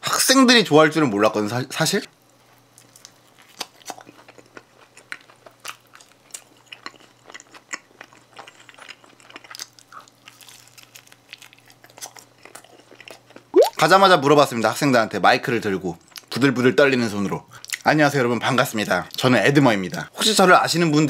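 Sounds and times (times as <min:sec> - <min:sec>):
crunchy chewing: 0:02.3 - 0:13.5
mouth clicks: 0:13.6 - 0:13.8.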